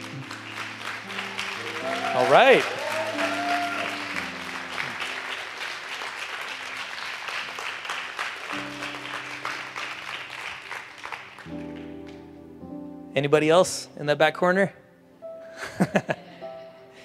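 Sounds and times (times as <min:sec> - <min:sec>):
crowd applauding: 0:00.0 - 0:12.2
soft background music chords: 0:08.6 - 0:17.0.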